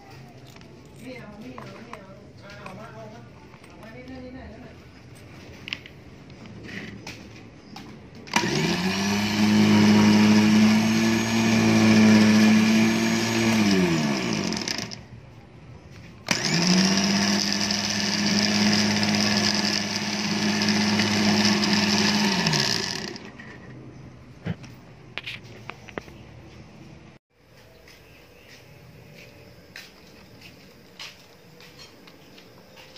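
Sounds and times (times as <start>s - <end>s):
electric winch motor whining: 8.3s - 15.0s, 16.2s - 23.5s.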